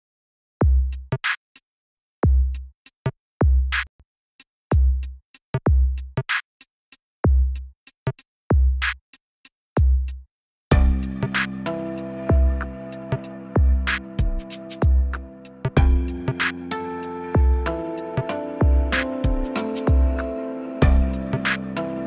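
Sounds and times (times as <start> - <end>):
deep kick drums: 0.6 - 1.1, 2.2 - 2.6, 3.4 - 3.7, 4.7 - 5.1, 5.7 - 6.1, 7.3 - 7.6, 8.5 - 8.8, 9.8 - 10.1, 10.7 - 11.3, 12.3 - 12.7, 13.6 - 16.4, 17.4 - 17.8, 18.6 - 20.2, 20.8 - 21.4
snare or clap hits: 11.4 - 11.6, 13.9 - 14.9, 16.3 - 16.7, 18.9 - 19.9, 21.4 - 21.7
hi-hat ticks: 13.9 - 16.6.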